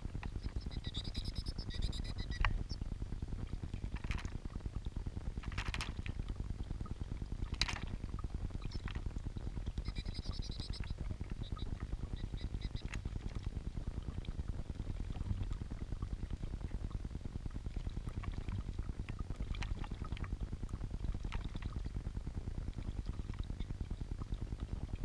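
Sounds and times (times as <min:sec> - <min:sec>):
fountain water bubbling: 0:00.0 - 0:25.0
birds splashing in water: 0:03.8 - 0:04.4, 0:06.8 - 0:14.3.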